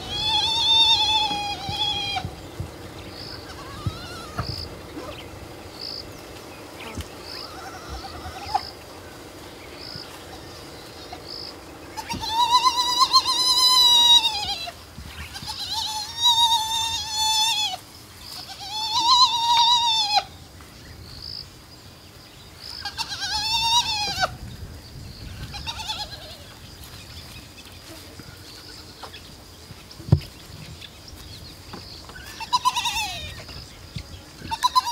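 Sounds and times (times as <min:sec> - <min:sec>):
hyena cubs whining: 0:00.0 - 0:20.4, 0:32.0 - 0:34.9.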